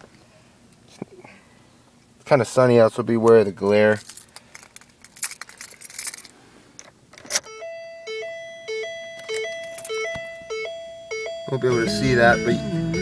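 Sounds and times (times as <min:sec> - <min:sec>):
car keys jingling: 0:03.3 - 0:11.6
car warning chime: 0:07.4 - 0:13.0.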